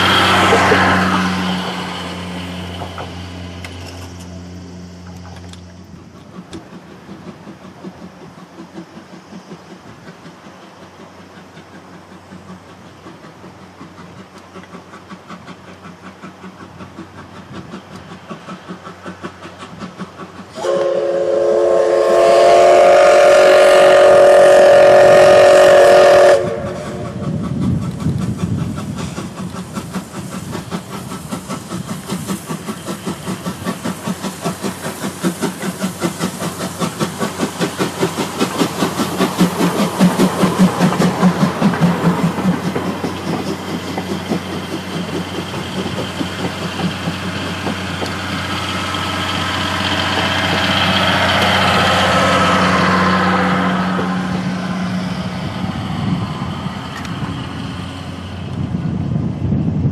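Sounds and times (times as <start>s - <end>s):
train wheels clattering: 0.0s - 59.2s
steam locomotive chuffing: 0.0s - 59.9s
steam whistle blast: 20.5s - 27.2s.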